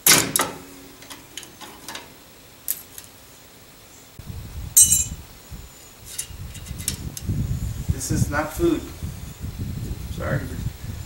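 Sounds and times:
metal tools clinking: 0:04.8 - 0:05.2.

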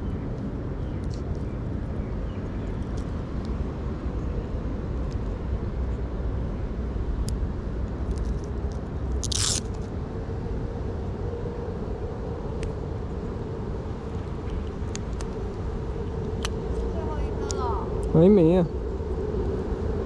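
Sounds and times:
low outdoor rumble: 0:00.0 - 0:20.0
crunchy scrape: 0:09.2 - 0:09.9.

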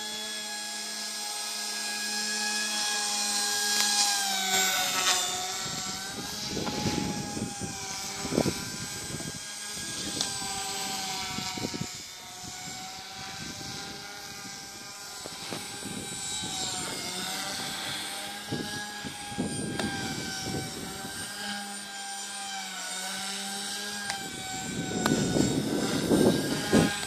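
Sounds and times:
rc helicopter motor whine: 0:00.0 - 0:27.0
wind rumble on microphone: 0:04.6 - 0:21.7, 0:23.8 - 0:27.0.

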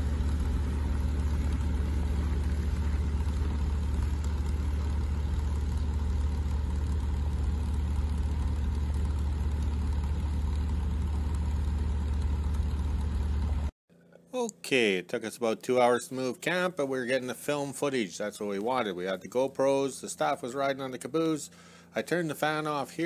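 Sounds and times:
heavy tractor engine droning: 0:00.0 - 0:13.7.

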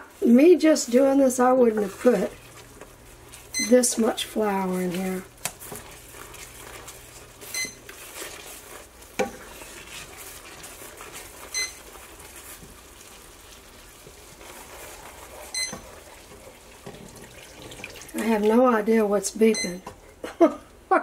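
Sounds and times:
wooden spoon stirring sauce in pan: 0:00.0 - 0:20.2
thermometer beeping: 0:03.5 - 0:03.9, 0:07.5 - 0:07.8, 0:11.5 - 0:11.8, 0:15.5 - 0:15.8, 0:19.5 - 0:19.8.

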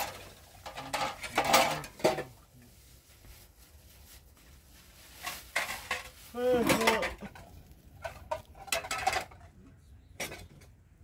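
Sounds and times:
hard objects clinking: 0:05.4 - 0:09.6.

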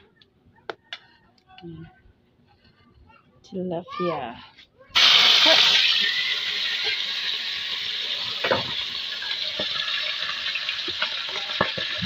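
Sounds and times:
fish sizzling in hot oil: 0:05.0 - 0:12.0
oil popping: 0:05.0 - 0:12.0.

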